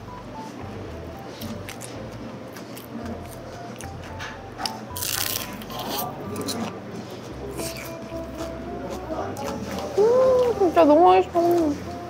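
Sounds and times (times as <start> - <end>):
soft background music: 0.0 - 12.0
crunching of pastry being chewed: 0.4 - 10.6.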